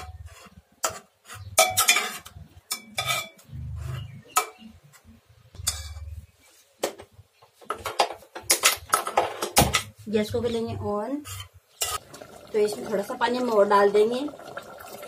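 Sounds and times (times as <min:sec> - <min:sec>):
ladle scraping metal pot: 0:00.0 - 0:04.6, 0:11.1 - 0:13.1.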